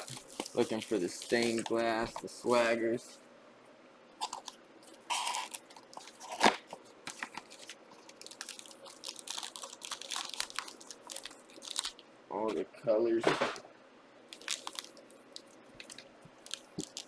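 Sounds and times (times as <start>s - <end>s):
wrapper crinkling and tearing: 0.0s - 2.1s, 4.2s - 12.0s, 14.3s - 17.0s.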